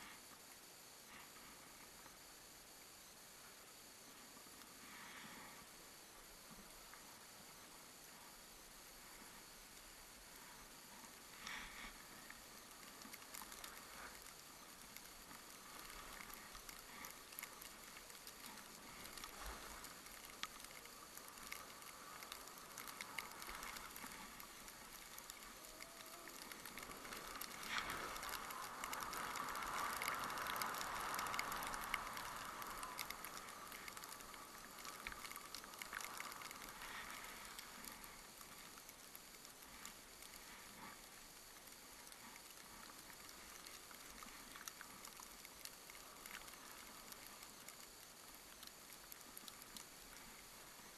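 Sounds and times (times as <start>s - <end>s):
skis hissing over snow: 3.5s - 35.0s
small clicks and rattles: 10.4s - 50.9s.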